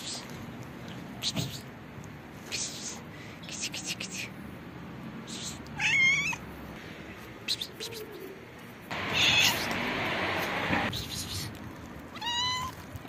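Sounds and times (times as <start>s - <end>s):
cats meowing: 5.7s - 6.4s, 8.9s - 9.8s, 11.5s - 13.0s.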